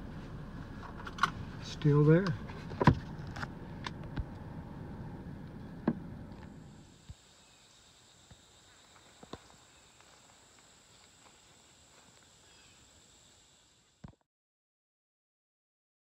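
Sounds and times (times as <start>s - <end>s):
low rumble of car cabin: 0.0s - 6.8s
high-pitched drone of insects: 6.6s - 14.0s.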